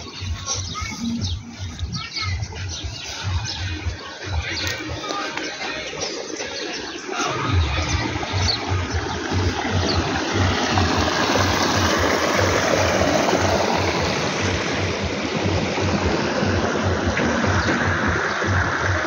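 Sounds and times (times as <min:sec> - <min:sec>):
music with low beat: 0:00.0 - 0:19.0
loud rushing noise: 0:06.3 - 0:19.0.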